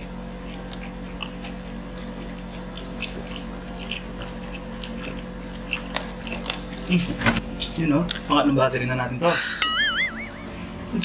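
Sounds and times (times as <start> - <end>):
chewing with wet smacks: 0.0 - 8.3
steady low hum: 0.0 - 11.0.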